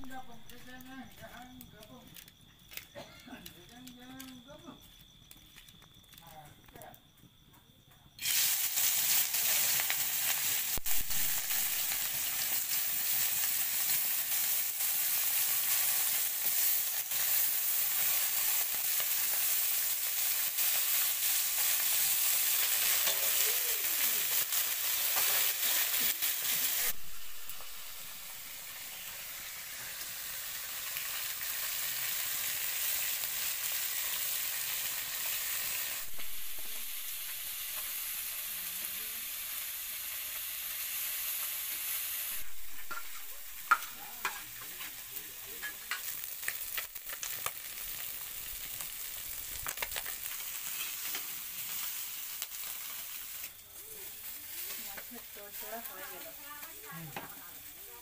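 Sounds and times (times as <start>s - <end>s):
fish sizzling in hot oil: 8.1s - 58.0s
metal spatula scraping and tapping pan: 42.8s - 45.0s.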